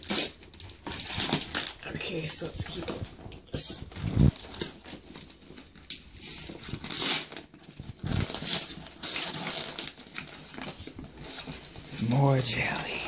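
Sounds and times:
paper and cardboard tearing: 0:00.0 - 0:03.0, 0:03.6 - 0:13.0.

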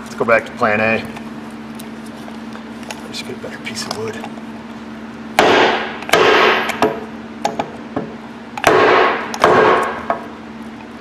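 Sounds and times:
hammer striking wooden block: 0:05.4 - 0:10.2.

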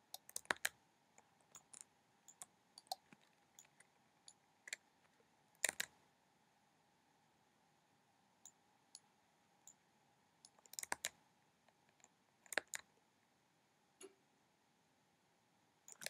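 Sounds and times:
mouse buttons clicking: 0:00.1 - 0:00.7, 0:01.5 - 0:04.8, 0:05.6 - 0:06.0, 0:10.4 - 0:11.2
keyboard keys clicking: 0:00.2 - 0:00.7.

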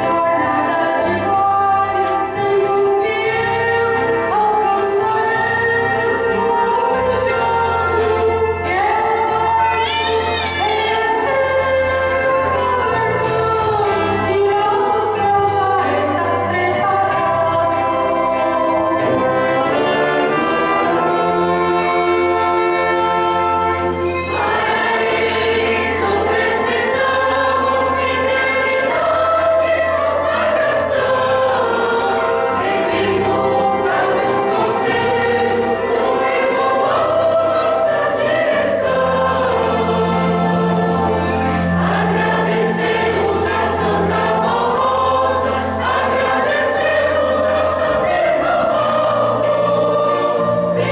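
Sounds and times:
choir singing a hymn: 0:00.0 - 0:50.9
violin: 0:00.0 - 0:50.9
brass: 0:18.2 - 0:50.9.

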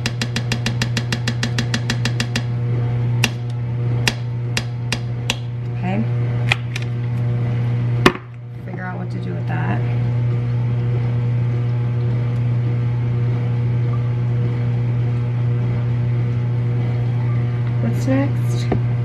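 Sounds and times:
spoon knocking against a can: 0:00.0 - 0:02.4
steady low hum: 0:00.0 - 0:19.0.

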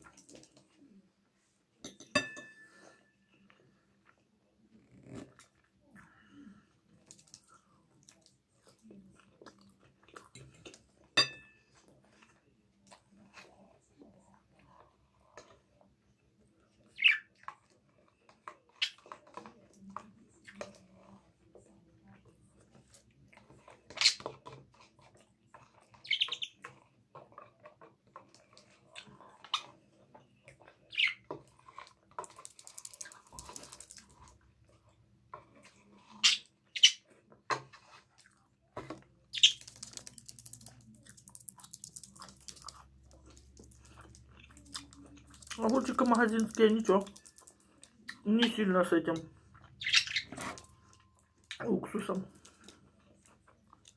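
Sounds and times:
spoon and dish clatter: 0:01.8 - 0:03.1, 0:11.1 - 0:11.8
eating sounds: 0:03.4 - 0:11.2, 0:11.8 - 0:53.9
budgerigar chirping: 0:26.0 - 0:26.6, 0:49.8 - 0:50.4.

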